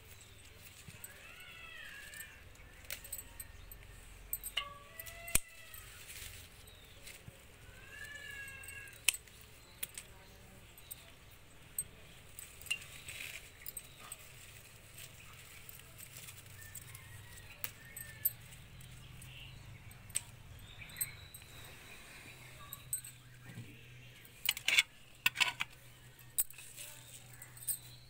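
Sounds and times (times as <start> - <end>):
scissors snipping flower stems: 0.2 - 6.0.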